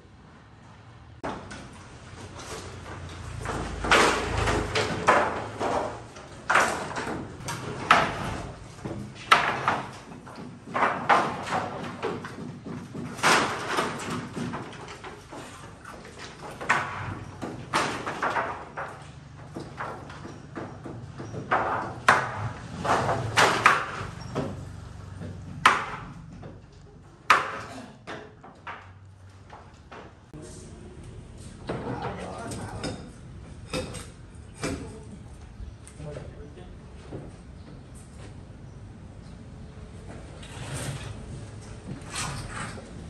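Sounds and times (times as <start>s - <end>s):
wooden poles knocking: 1.2s - 30.3s
wood being struck: 25.6s - 26.4s.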